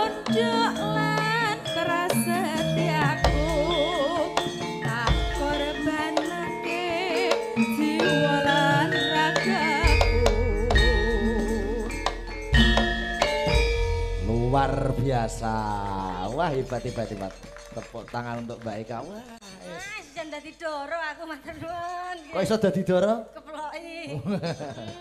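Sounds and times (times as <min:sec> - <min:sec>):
woman singing with vibrato: 0:00.0 - 0:12.5
gamelan ensemble: 0:00.0 - 0:20.0.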